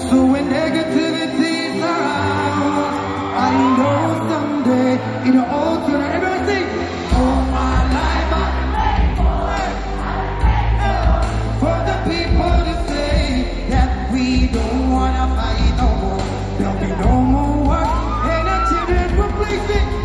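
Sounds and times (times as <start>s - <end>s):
man singing live with band: 0.0s - 20.0s
heavy bass: 7.1s - 20.0s.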